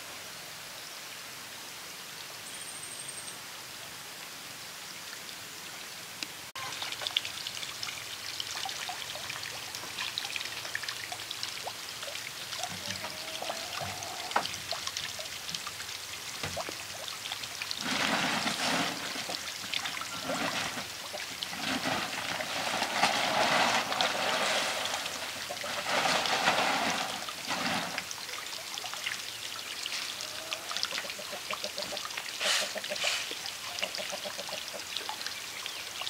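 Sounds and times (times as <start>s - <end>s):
water pouring into a pond: 6.5s - 36.0s.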